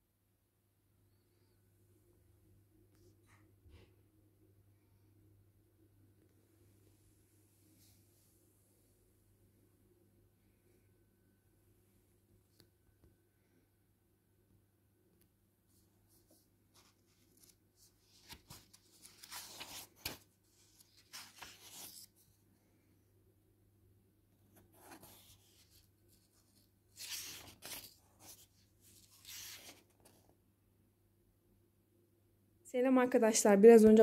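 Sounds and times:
faint room hum: 0.0s - 34.0s
book pages turning: 16.1s - 22.3s, 24.5s - 30.3s.

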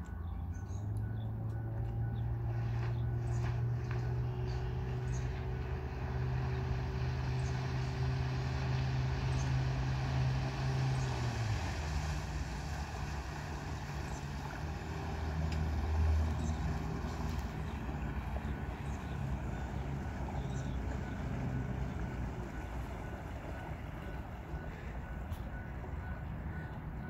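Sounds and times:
boat engine running: 0.2s - 27.0s.

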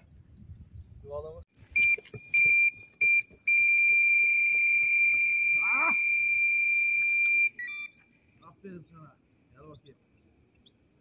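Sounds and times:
bite alarm beeps and tone: 1.8s - 8.0s.

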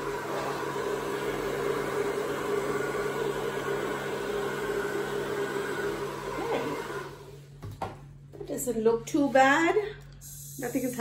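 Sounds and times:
hair dryer running: 0.0s - 7.6s, 10.2s - 11.0s.

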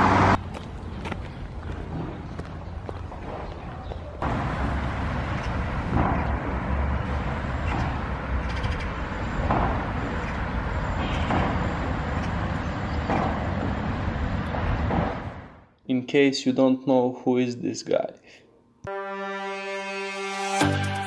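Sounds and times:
outdoor rumble and hiss: 4.2s - 15.8s.

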